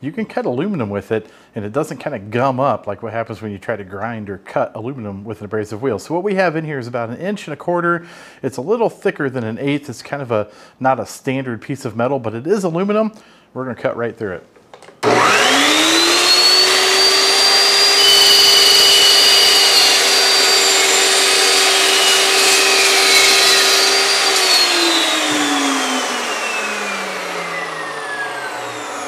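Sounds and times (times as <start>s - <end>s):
chop saw cutting metal: 15.0s - 29.0s
saw blade spinning down: 15.0s - 29.0s.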